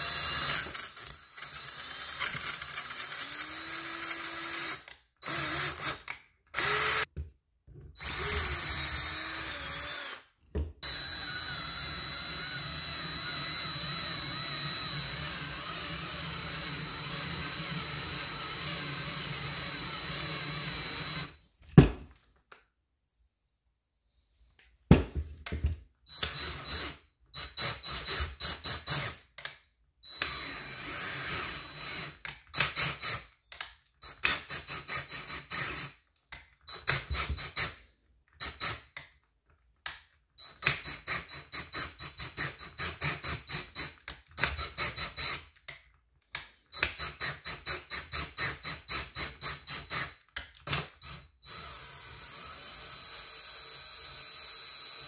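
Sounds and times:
cordless drill whining: 0:00.0 - 0:00.8, 0:01.5 - 0:07.1, 0:08.0 - 0:21.4, 0:26.1 - 0:29.2, 0:30.0 - 0:33.3, 0:50.7 - 0:55.0.

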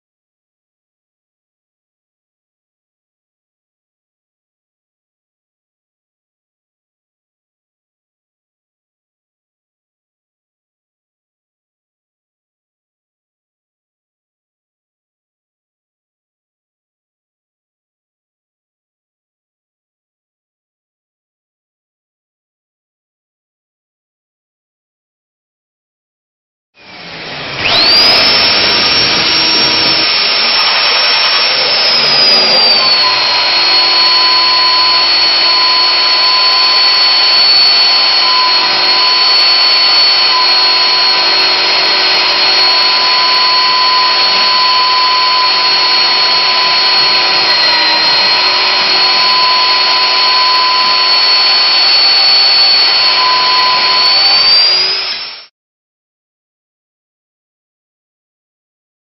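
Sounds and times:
cutter grinding through steel: 0:26.8 - 0:55.5
magnetic drill motor whine: 0:26.9 - 0:55.5.

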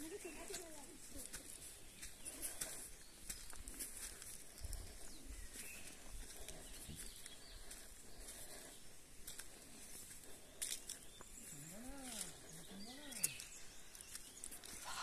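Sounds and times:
footsteps crunching on dry leaves: 0:00.0 - 0:15.0
faint bird calls: 0:11.0 - 0:15.0.

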